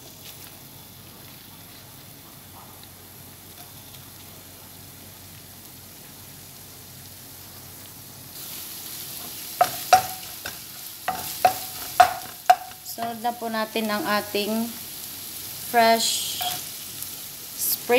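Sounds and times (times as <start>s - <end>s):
ginger sizzling in hot oil: 0.0s - 17.9s
wooden spoon stirring: 9.6s - 13.2s
knock against pan: 11.1s - 12.8s.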